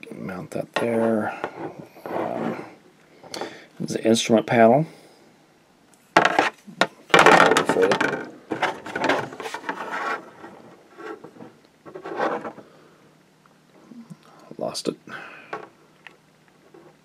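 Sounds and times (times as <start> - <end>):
plastic parts clattering and rattling: 6.2 - 12.6.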